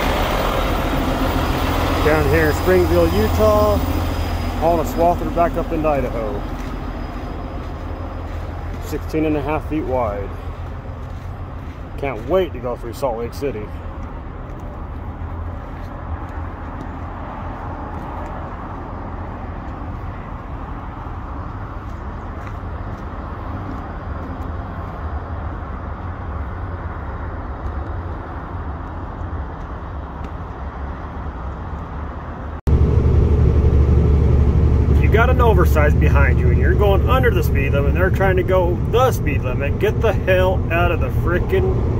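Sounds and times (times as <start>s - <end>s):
diesel truck idling: 0.0s - 15.6s, 32.7s - 41.9s
truck engine and road rumble: 0.0s - 41.9s.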